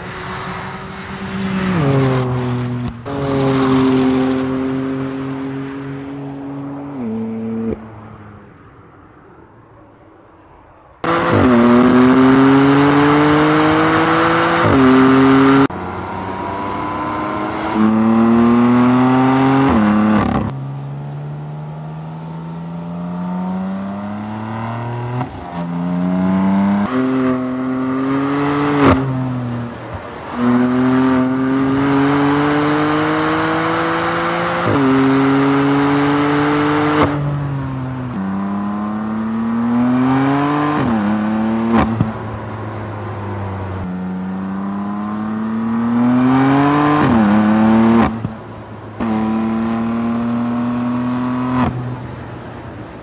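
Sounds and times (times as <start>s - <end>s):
car engine accelerating: 0.0s - 8.8s, 11.0s - 52.4s.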